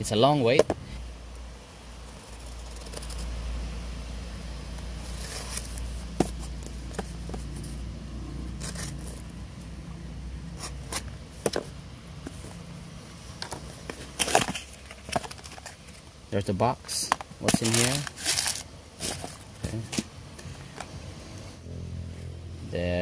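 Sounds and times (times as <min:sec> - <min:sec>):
paper rustling: 0:17.4 - 0:20.8.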